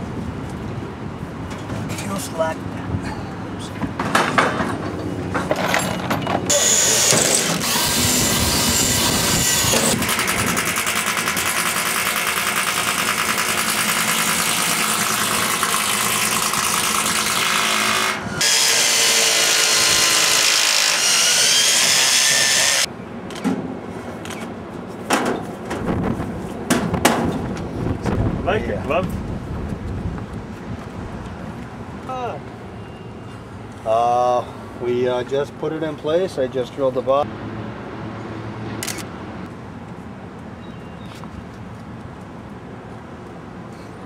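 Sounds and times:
power drill drilling into metal: 6.5s - 22.9s.

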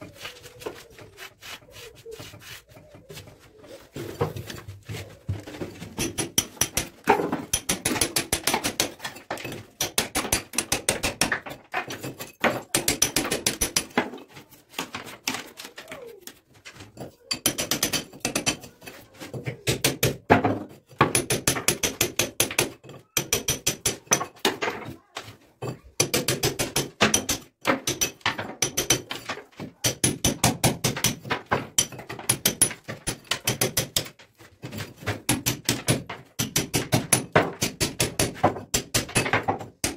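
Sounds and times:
hammer striking steel chisel: 6.0s - 11.6s, 21.0s - 24.4s, 26.0s - 34.2s, 35.0s - 39.9s.

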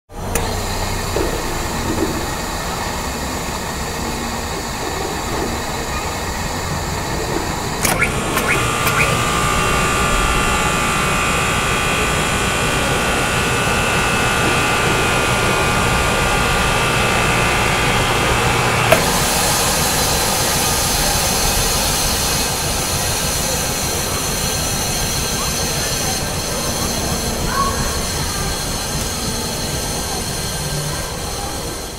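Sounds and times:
air compressor running with whine: 0.1s - 31.9s
compressor clicks: 0.2s - 2.3s, 7.2s - 10.0s, 18.8s - 22.2s.

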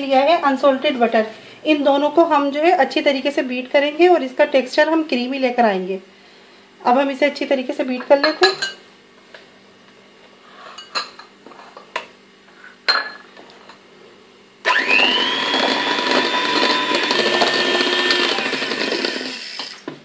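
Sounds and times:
electric hand mixer whining: 14.6s - 20.0s.

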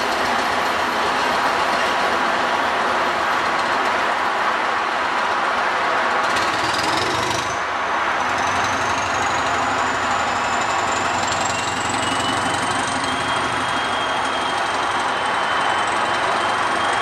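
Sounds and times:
diesel train engine rumbling: 0.0s - 17.0s
train high whine: 0.0s - 17.0s.

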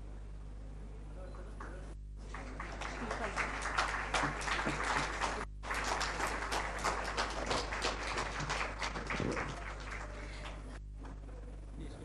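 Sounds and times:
audience applause: 2.2s - 10.8s.

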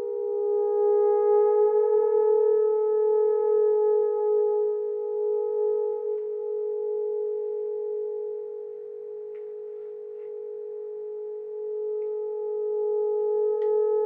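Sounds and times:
steady ringing tone: 5.2s - 14.0s.

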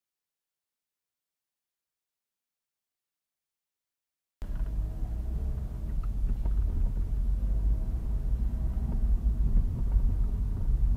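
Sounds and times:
vehicle rumble inside car: 4.4s - 10.9s.

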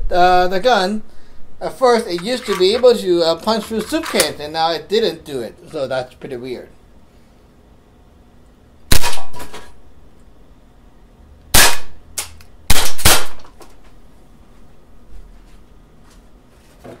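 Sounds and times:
bb pistol shots: 8.9s - 9.4s, 11.5s - 13.5s.

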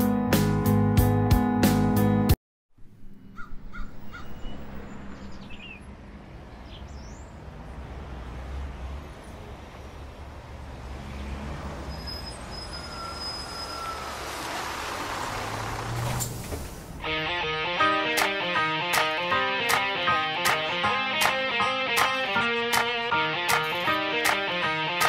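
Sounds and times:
low traffic rumble: 2.8s - 17.2s
vehicle approaching: 2.9s - 17.2s
bird chirps: 3.1s - 5.9s.

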